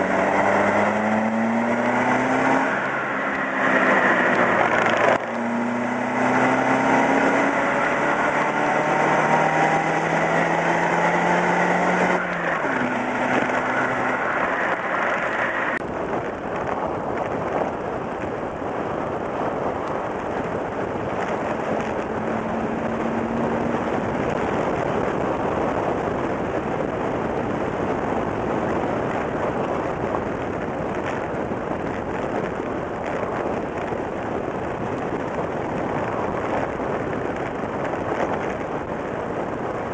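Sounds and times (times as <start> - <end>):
car engine accelerating: 0.0 - 15.8, 19.8 - 31.6
wind and tyre noise: 0.0 - 39.9.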